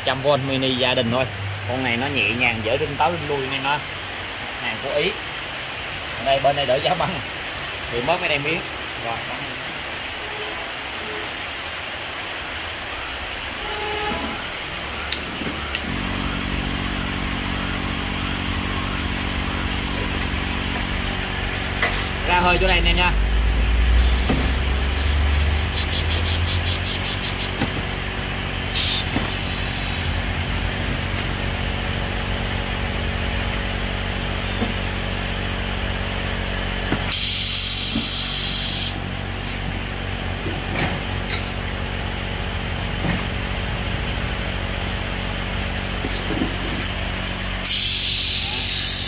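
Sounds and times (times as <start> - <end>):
air compressor running: 13.6 - 49.0
compressed air hissing: 15.9 - 27.6, 28.7 - 30.1, 37.1 - 39.6, 47.6 - 49.0.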